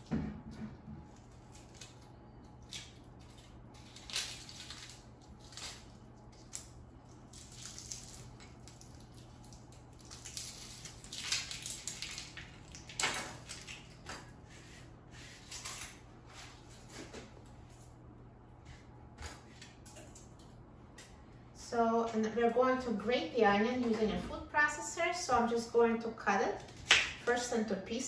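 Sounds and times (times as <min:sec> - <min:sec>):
steady low hum: 0:00.0 - 0:28.0
onion skin crackling and rustling: 0:01.1 - 0:17.3.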